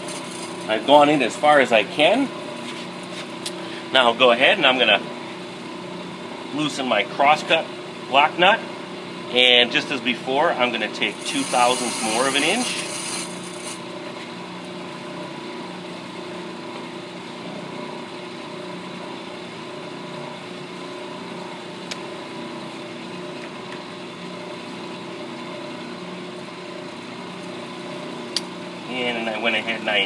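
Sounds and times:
brake lathe humming: 0:10.6 - 0:14.3.

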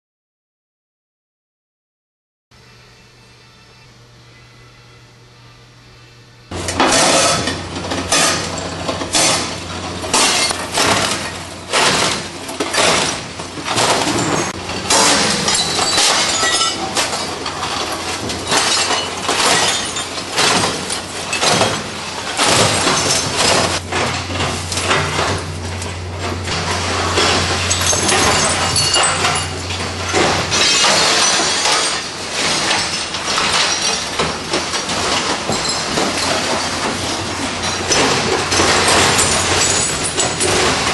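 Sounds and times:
crusher machine low hum: 0:02.8 - 0:40.9
glass breaking and crunching: 0:06.5 - 0:40.9.

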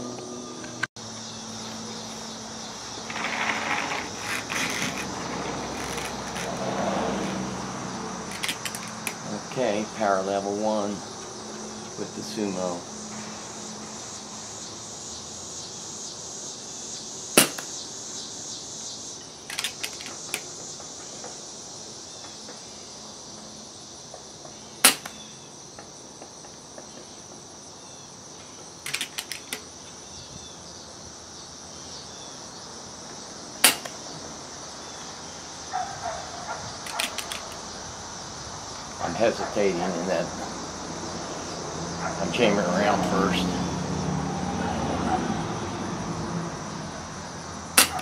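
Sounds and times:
air rifle shots: 0:17.4 - 0:17.7, 0:33.6 - 0:34.0
quick mechanical clicks: 0:28.9 - 0:29.6, 0:36.9 - 0:37.6.

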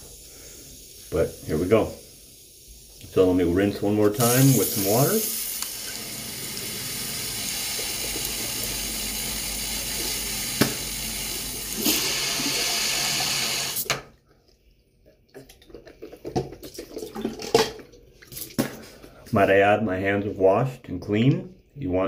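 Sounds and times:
sink tap running: 0:02.9 - 0:14.0.

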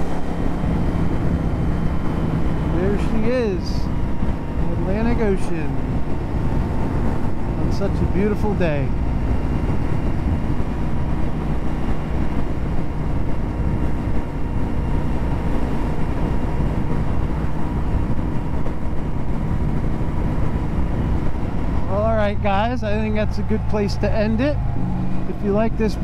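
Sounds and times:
motorcycle engine cruising: 0:00.0 - 0:26.0
wind and road noise: 0:00.0 - 0:26.0.

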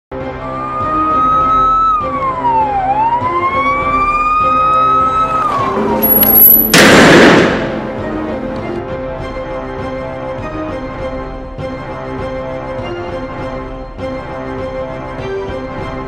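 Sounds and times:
background music: 0:00.1 - 0:16.0
siren wailing: 0:00.4 - 0:06.5.

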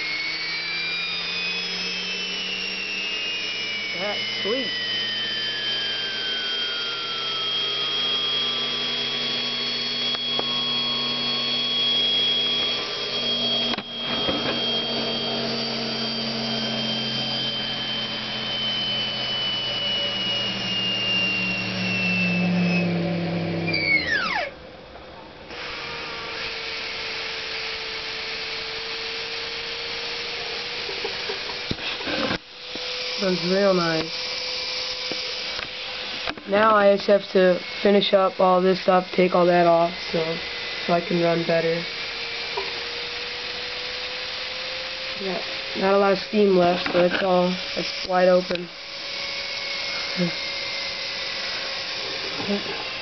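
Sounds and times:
low hum: 0:00.0 - 0:25.6
steam turbine whine: 0:00.0 - 0:53.0.

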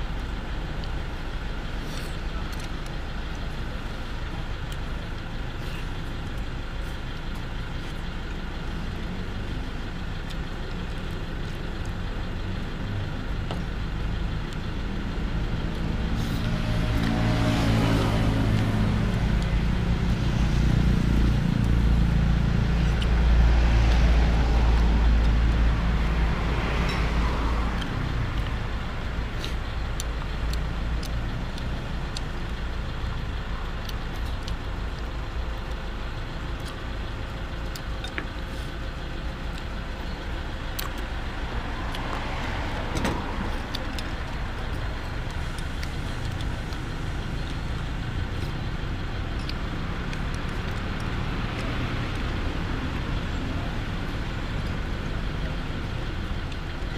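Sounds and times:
steady traffic hum: 0:00.0 - 0:56.9
vehicle passing: 0:16.1 - 0:28.8.

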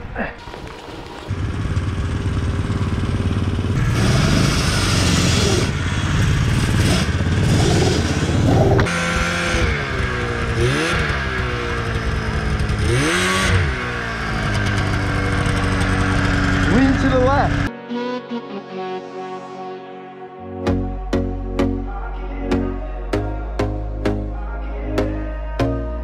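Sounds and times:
snowmobile engines revving: 0:00.4 - 0:17.7.

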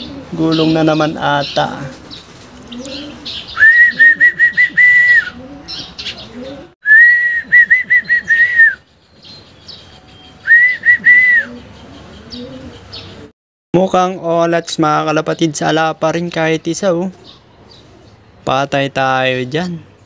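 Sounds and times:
small birds chirping: 0:00.0 - 0:06.8, 0:07.9 - 0:13.3, 0:14.5 - 0:20.0
pigeons cooing: 0:00.0 - 0:13.3, 0:17.1 - 0:18.4
person whistling: 0:03.6 - 0:05.4, 0:06.8 - 0:08.8, 0:10.4 - 0:11.6.

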